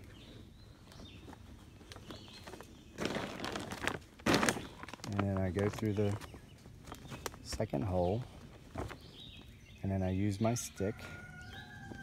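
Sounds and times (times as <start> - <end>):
tarp rustling: 1.2 - 7.6.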